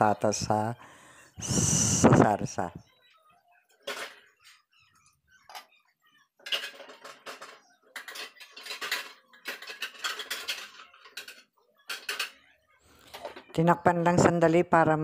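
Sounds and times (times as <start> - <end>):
metal utensils clinking and scraping: 3.8 - 4.6, 6.4 - 13.6.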